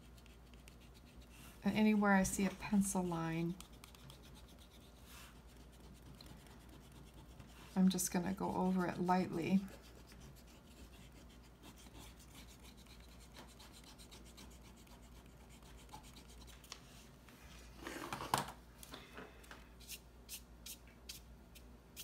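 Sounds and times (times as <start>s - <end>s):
brush swishing across paper: 0.0s - 7.8s
eraser rubbing on paper: 2.4s - 7.8s.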